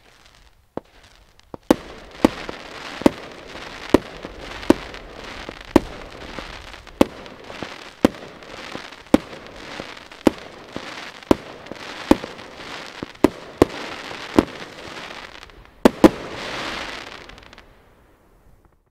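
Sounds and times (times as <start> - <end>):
hissing crackle of glitter stars: 0.0 - 18.9.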